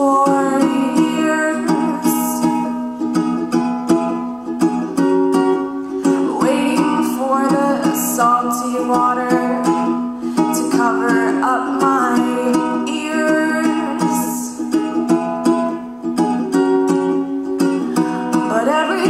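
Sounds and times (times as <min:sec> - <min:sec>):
woman singing: 0:00.0 - 0:02.9, 0:06.0 - 0:14.8, 0:17.9 - 0:19.0
ukulele strumming: 0:00.0 - 0:19.0.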